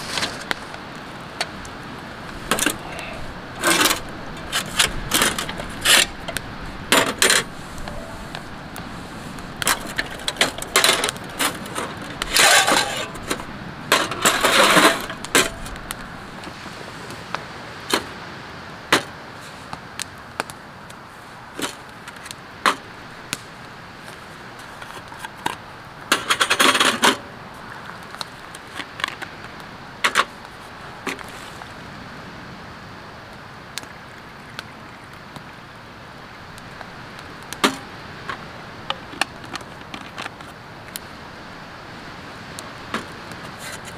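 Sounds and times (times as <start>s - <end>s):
metal camp gear clattering: 2.4s - 8.7s, 9.4s - 16.4s, 24.7s - 27.3s.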